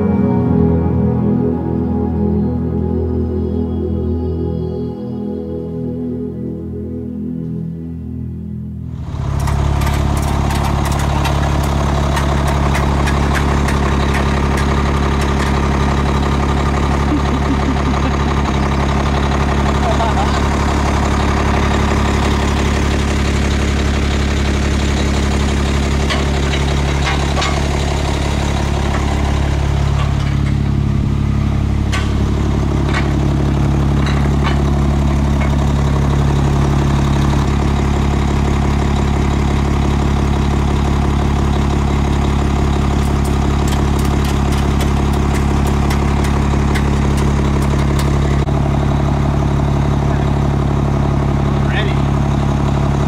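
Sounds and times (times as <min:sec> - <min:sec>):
diesel engine idling: 0:08.8 - 0:53.0
straps ratcheting ticks: 0:09.4 - 0:15.6.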